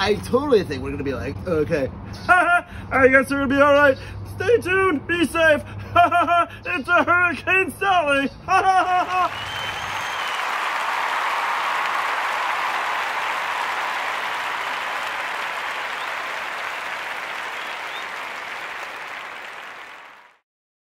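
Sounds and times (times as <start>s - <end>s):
audience applause: 8.8s - 20.4s.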